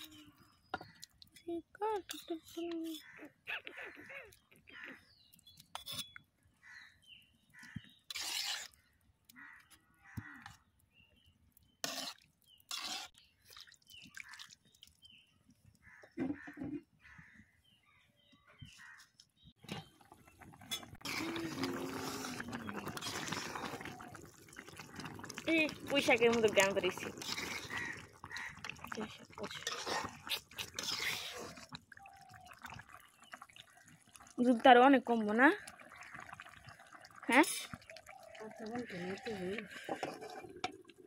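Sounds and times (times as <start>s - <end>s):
water pouring: 19.6s - 41.0s.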